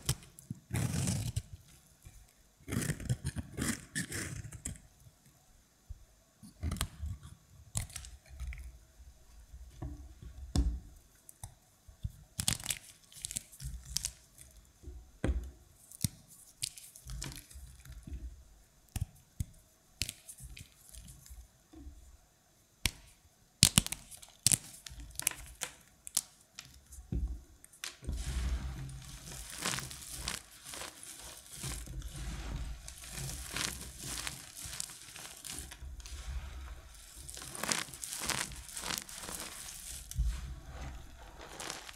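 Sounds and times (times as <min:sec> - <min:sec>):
soap pieces crunching in hands: 0:29.0 - 0:40.2.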